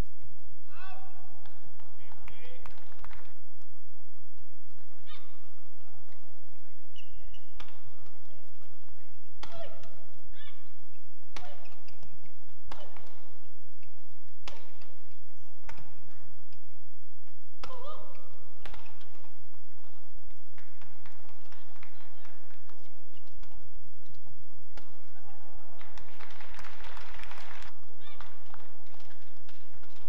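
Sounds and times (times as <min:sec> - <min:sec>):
shoes squeaking on court: 0:04.8 - 0:09.4, 0:10.6 - 0:15.8, 0:22.6 - 0:25.0
rackets striking shuttlecock: 0:06.0 - 0:25.2, 0:27.7 - 0:30.0.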